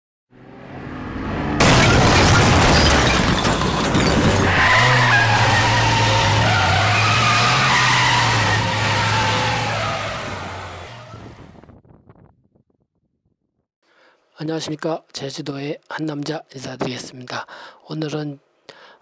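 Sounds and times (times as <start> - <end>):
bricks smashing and clattering: 1.6 - 6.2
tyres squealing: 3.2 - 11.2
car engine running hard: 4.7 - 11.4.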